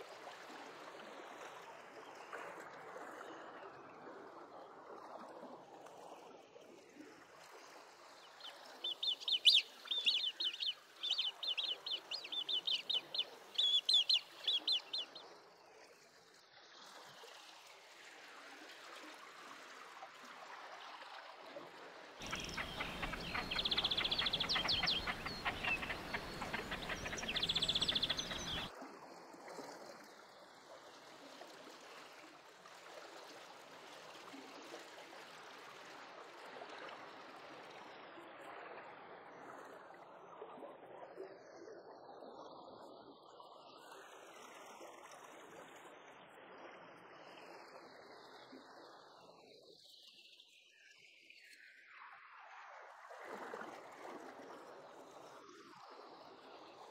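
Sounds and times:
faint watery wash: 0.0s - 56.9s
bird chicks piping: 8.8s - 15.2s, 22.2s - 28.7s.

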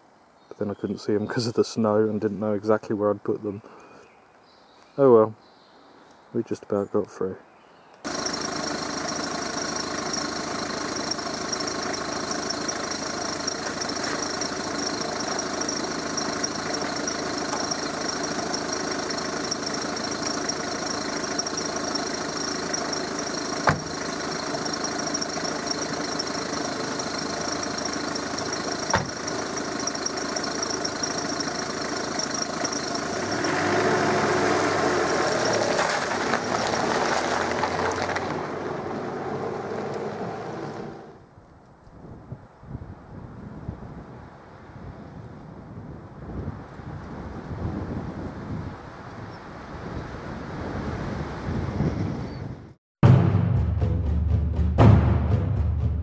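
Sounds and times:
truck engine idling: 8.1s - 41.1s
truck pulling away: 8.1s - 41.3s.

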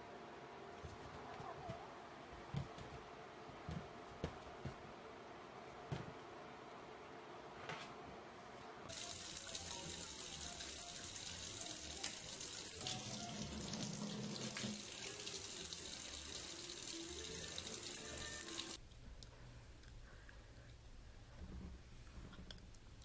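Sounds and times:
faucet running into metal sink: 8.9s - 18.8s.

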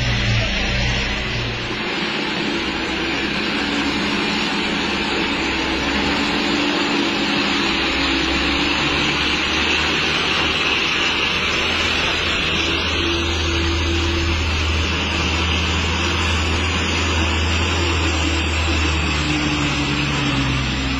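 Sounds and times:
diesel truck driving past: 0.0s - 20.9s.

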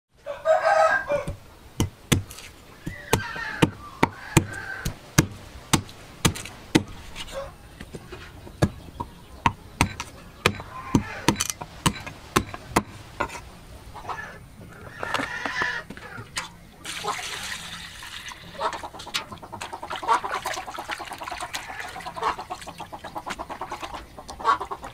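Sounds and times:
cleaver chopping on wooden block: 1.2s - 7.0s, 8.6s - 13.4s.

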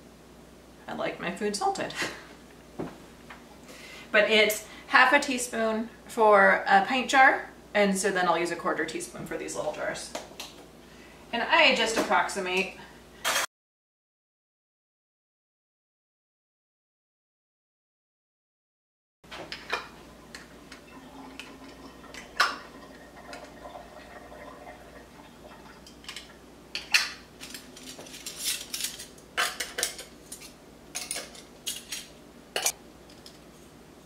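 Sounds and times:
metal lids clinking: 26.0s - 33.4s.

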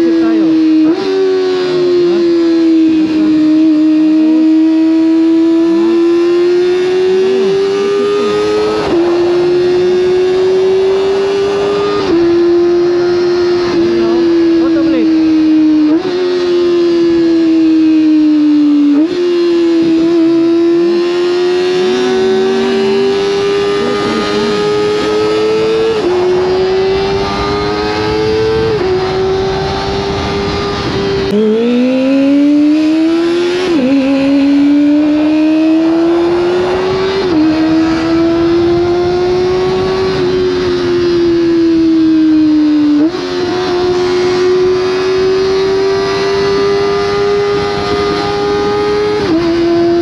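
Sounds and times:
motorcycle engine at high revs: 0.0s - 50.0s
wind rush on microphone: 21.6s - 31.4s, 32.6s - 50.0s.

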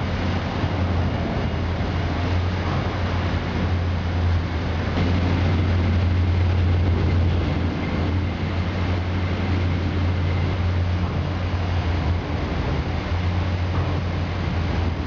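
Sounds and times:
constant low hum: 0.0s - 15.0s
industrial shredder drone: 3.6s - 15.0s.

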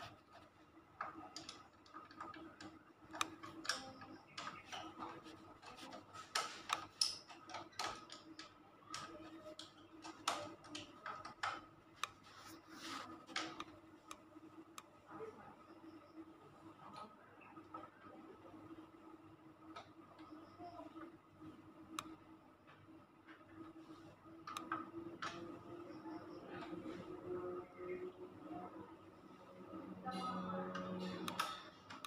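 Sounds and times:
faint steady hum: 0.0s - 32.0s
screwdriver and wires clicking on metal: 1.0s - 12.2s, 30.7s - 32.0s.

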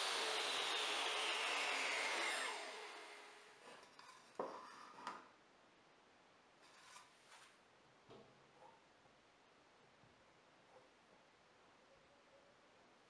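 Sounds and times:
table saw blade whine winding down: 0.0s - 3.6s.

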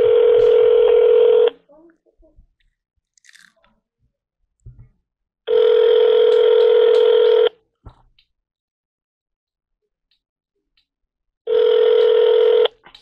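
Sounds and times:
phone ringback tone: 0.0s - 1.5s, 5.5s - 7.5s, 11.5s - 12.7s.

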